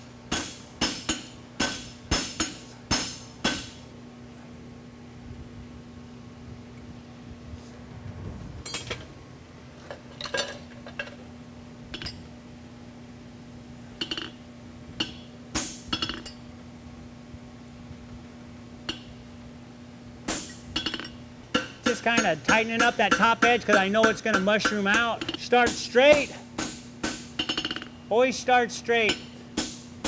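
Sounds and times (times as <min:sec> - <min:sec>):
steady low hum: 0:00.0 - 0:30.0
metal tools clinking on horseshoe: 0:11.9 - 0:12.3, 0:14.0 - 0:14.4, 0:15.9 - 0:16.4, 0:20.4 - 0:21.2, 0:27.4 - 0:27.9.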